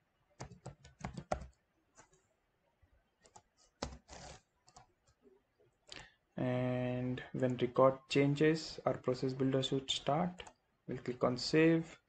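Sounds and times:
keyboard typing: 0:00.4 - 0:02.2, 0:03.2 - 0:05.2.

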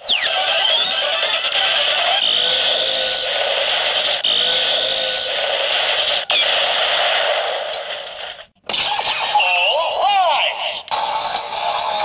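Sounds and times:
buzzy electronic toy sound loop: 0:00.0 - 0:06.6, 0:10.9 - 0:12.0.

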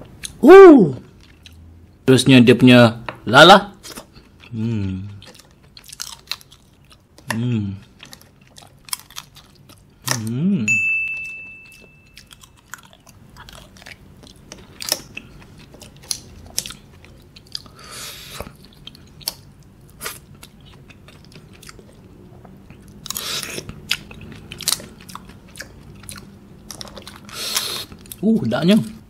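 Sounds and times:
person humming mmm: 0:04.5 - 0:05.2, 0:07.3 - 0:07.8, 0:10.1 - 0:10.8
chewing and lip smacks: 0:08.0 - 0:10.3, 0:12.2 - 0:28.2
thin high tone: 0:10.6 - 0:12.4.

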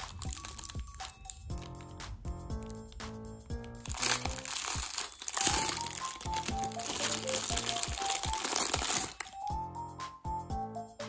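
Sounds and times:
plastic bag crinkling: 0:00.0 - 0:01.8, 0:03.6 - 0:09.5
light plucked background music: 0:00.0 - 0:11.0.

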